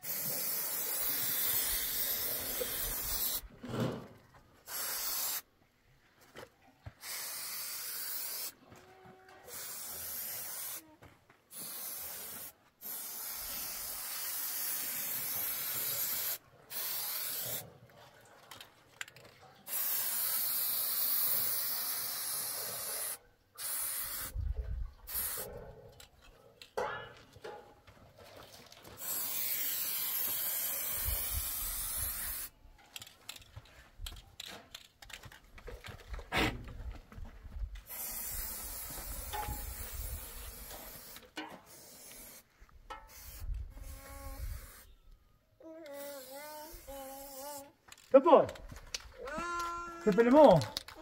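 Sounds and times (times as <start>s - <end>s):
spray paint can hissing: 0.0s - 3.5s, 4.6s - 5.5s, 7.0s - 8.6s, 9.5s - 10.8s, 11.5s - 17.6s, 19.7s - 24.4s, 25.1s - 25.5s, 29.0s - 32.6s, 37.8s - 44.9s, 45.9s - 48.1s.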